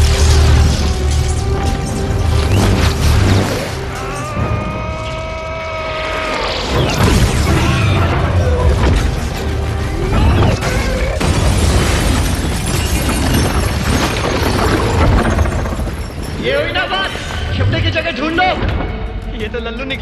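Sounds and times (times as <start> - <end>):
shattering debris: 0.0 - 4.7, 6.8 - 16.4
loud film score music: 0.0 - 20.0.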